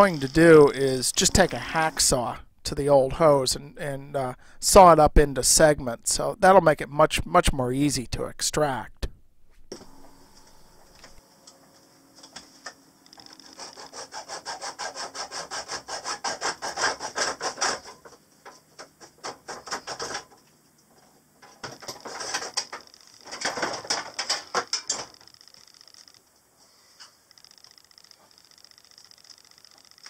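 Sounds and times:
hacksaw cutting metal pipe: 0.0s - 2.1s, 13.2s - 20.3s.

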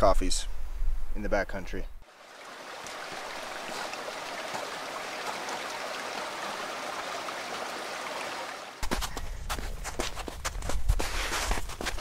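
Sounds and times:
stream rushing: 2.0s - 8.8s.

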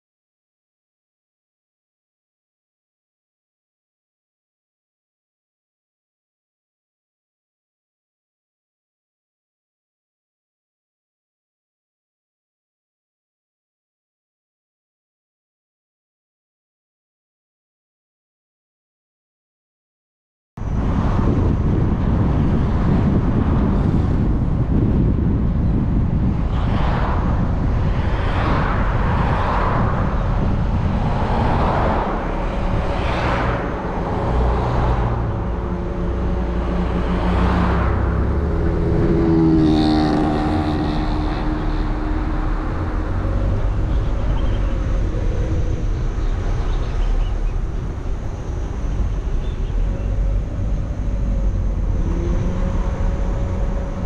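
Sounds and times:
vehicle engine and road rumble: 20.6s - 54.0s.

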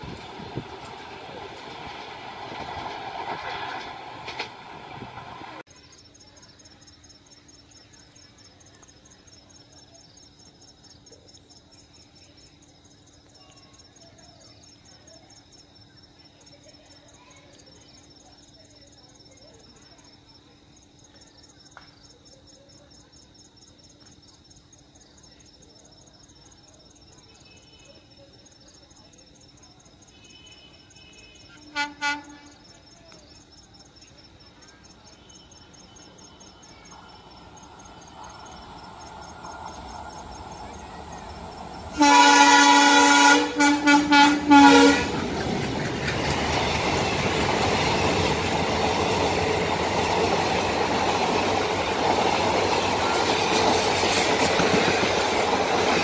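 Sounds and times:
locomotive rumble: 0.0s - 5.7s, 35.6s - 56.0s
crickets chirring: 0.0s - 56.0s
locomotive horn: 30.2s - 32.6s, 41.9s - 45.3s.

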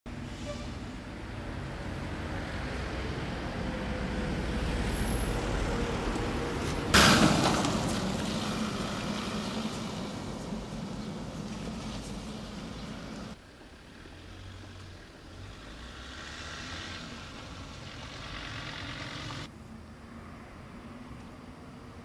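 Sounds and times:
vehicle engine running: 7.0s - 15.1s, 17.2s - 19.5s.

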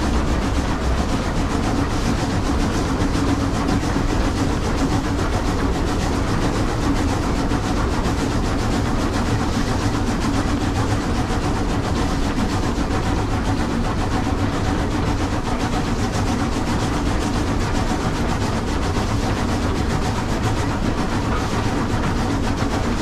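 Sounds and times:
train wheels on rails: 0.0s - 23.0s.

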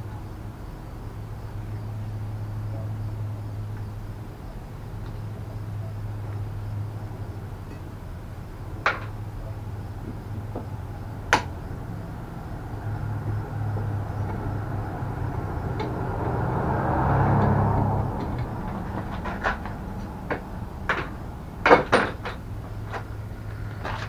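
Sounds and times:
steady low hum: 0.0s - 24.0s
scraping rustle: 18.2s - 20.3s, 22.1s - 24.0s.

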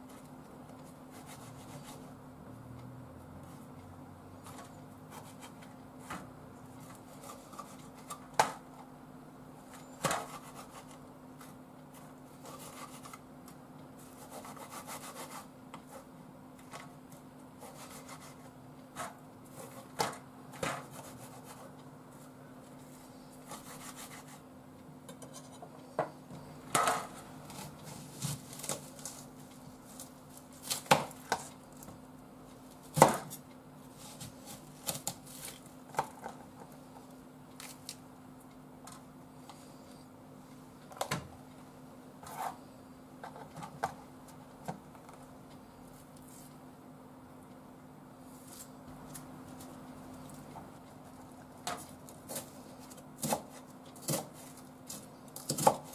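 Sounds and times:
faint steady hum: 0.0s - 55.9s
knife chopping on cutting board: 53.2s - 54.3s.

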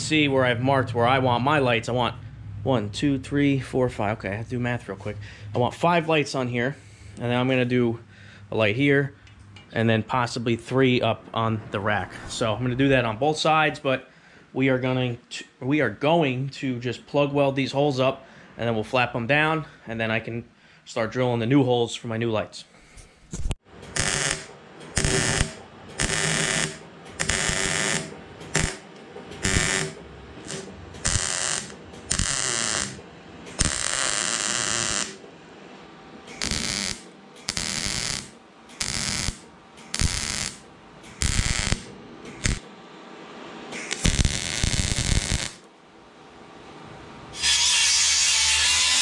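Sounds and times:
welding arc crackling: 23.8s - 35.2s, 36.3s - 42.7s, 43.8s - 45.6s
angle grinder whining: 23.9s - 35.2s, 36.3s - 42.6s, 43.8s - 45.6s.

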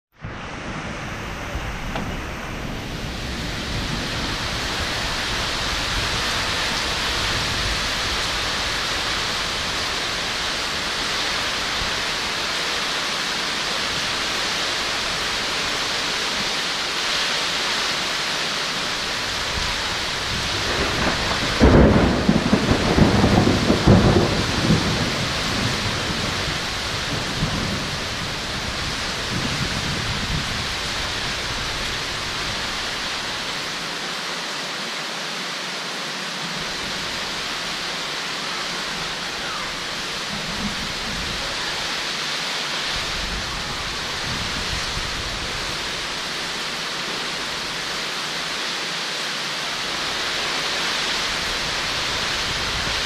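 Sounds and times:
thunder crack and rumble: 0.1s - 12.0s, 19.4s - 32.8s, 40.3s - 41.5s
heavy rain pouring: 0.1s - 53.0s.

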